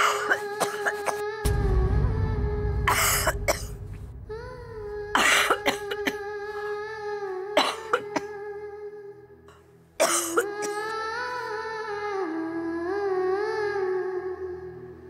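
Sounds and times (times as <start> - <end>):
elderly woman coughing: 0.0 - 1.2, 7.6 - 8.3, 10.0 - 10.8
background music drone: 0.0 - 15.0.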